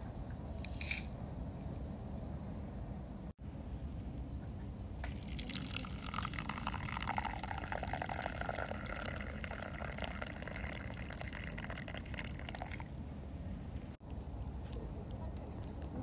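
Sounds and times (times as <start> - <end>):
water pouring into teapot: 5.0 - 13.0.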